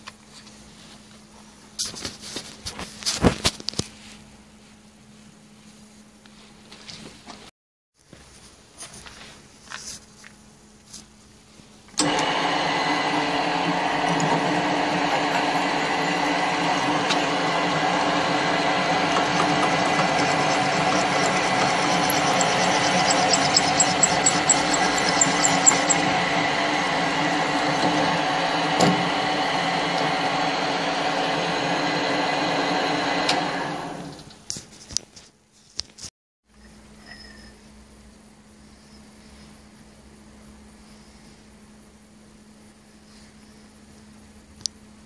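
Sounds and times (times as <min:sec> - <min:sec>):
drill press running: 0:12.0 - 0:34.2
fast high-pitched ticking: 0:19.6 - 0:26.1.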